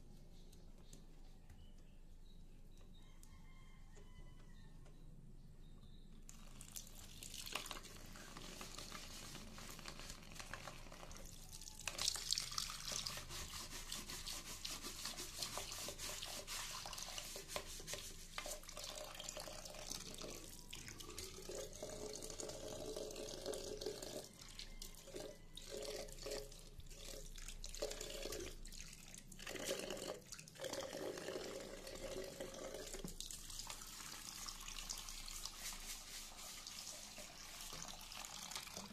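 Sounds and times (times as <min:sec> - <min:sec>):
tap water running into basin: 0:06.6 - 0:38.9
scrub brush scrubbing: 0:12.7 - 0:18.7, 0:33.5 - 0:38.1.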